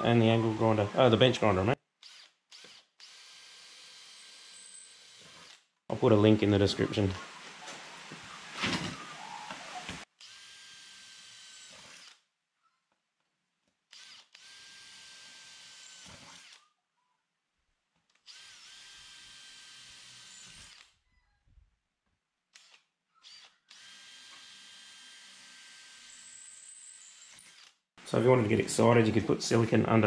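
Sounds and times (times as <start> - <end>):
drill boring through metal: 18.3 - 20.9, 22.6 - 27.8.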